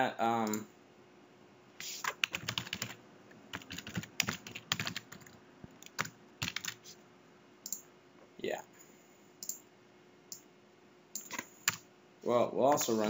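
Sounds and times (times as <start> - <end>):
typing on computer keyboard: 2.0 - 6.8, 11.2 - 11.8.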